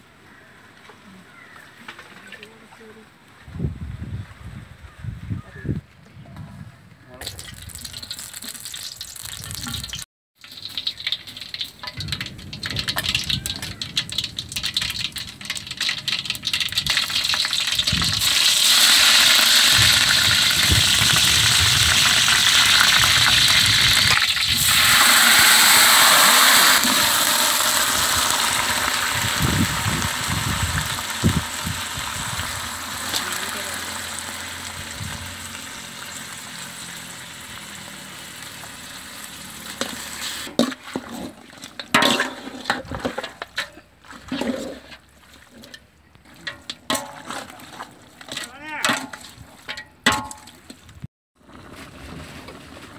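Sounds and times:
food sizzling in hot oil: 7.3 - 43.6.

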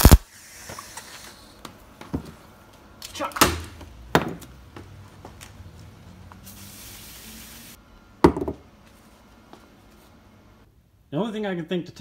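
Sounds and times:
heavy knock on workbench: 8.2 - 8.6.

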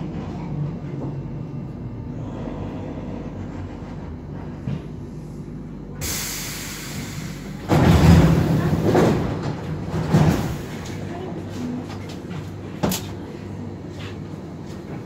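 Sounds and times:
train wheels rumbling: 0.0 - 15.0
loud hiss of air: 6.0 - 7.7.

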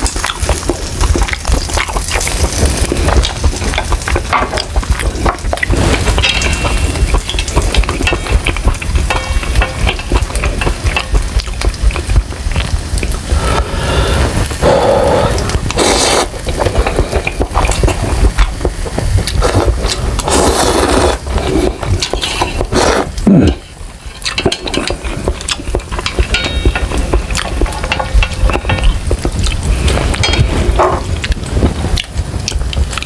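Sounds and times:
chewing with wet mouth clicks: 0.0 - 13.7, 14.6 - 23.3, 24.1 - 30.2, 31.2 - 33.0
wet noodle slurping: 13.3 - 23.6.

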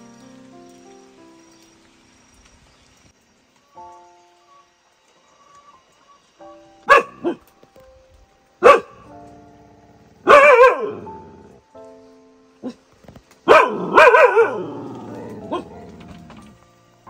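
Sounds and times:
soft background music: 0.0 - 17.0
dog barking: 6.8 - 7.4, 8.6 - 9.1, 10.2 - 11.5, 13.5 - 15.9.

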